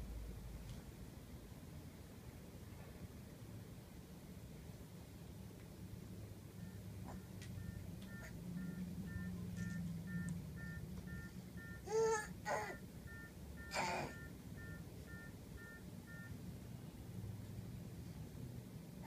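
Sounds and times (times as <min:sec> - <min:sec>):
baby babbling: 0:11.8 - 0:12.8, 0:13.7 - 0:14.2.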